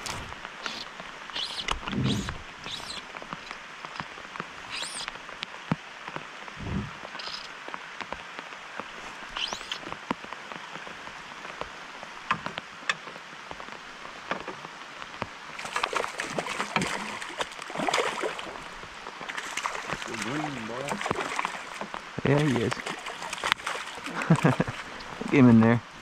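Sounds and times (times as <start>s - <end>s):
rain falling on river: 0.0s - 26.0s
fish thrashing and splashing: 15.6s - 25.0s.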